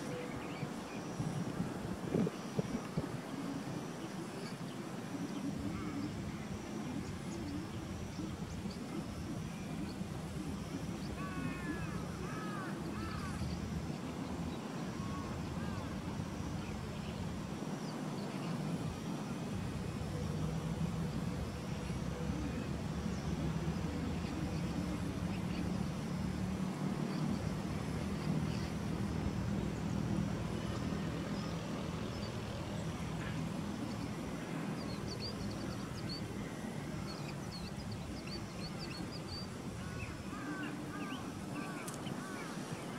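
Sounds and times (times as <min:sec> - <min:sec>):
distant traffic hum: 0:00.0 - 0:42.9
bird calling: 0:02.3 - 0:13.6, 0:38.1 - 0:42.9.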